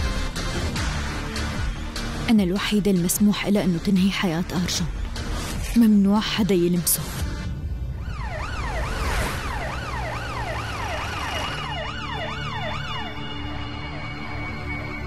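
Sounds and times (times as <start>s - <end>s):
police siren wailing: 7.9s - 15.0s.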